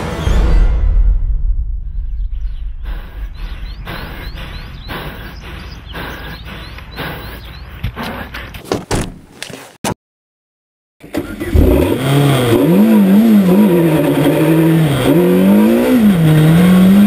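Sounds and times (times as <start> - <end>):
rising synth chirps: 1.7 - 6.4.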